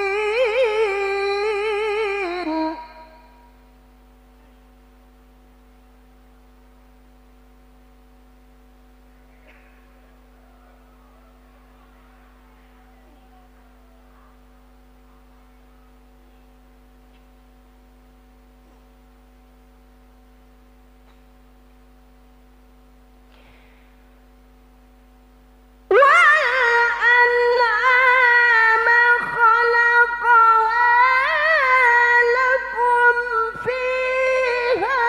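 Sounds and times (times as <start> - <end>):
electrical mains hum: 0.0 - 35.0
faint voices murmuring: 9.1 - 16.6.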